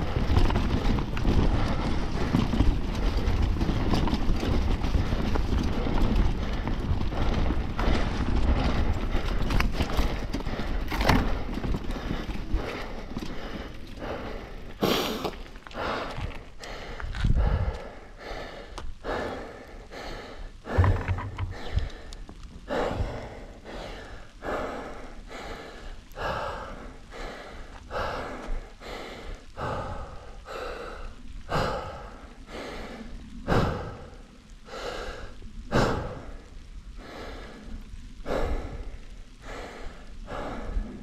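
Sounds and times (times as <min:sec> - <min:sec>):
person panting hard: 0:00.0 - 0:41.0.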